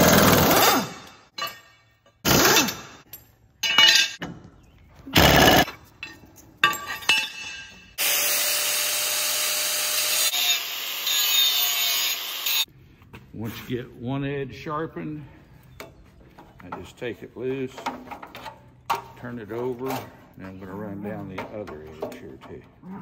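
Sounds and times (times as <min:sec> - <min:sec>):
pneumatic impact wrench rattling: 0:00.0 - 0:01.2, 0:02.2 - 0:03.0, 0:05.2 - 0:05.7
angle grinder running: 0:08.0 - 0:12.7.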